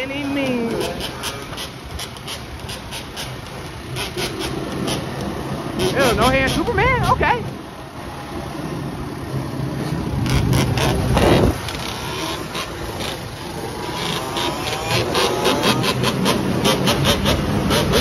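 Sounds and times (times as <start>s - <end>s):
quad bike engine revving hard: 0.4s - 7.3s, 10.0s - 18.0s.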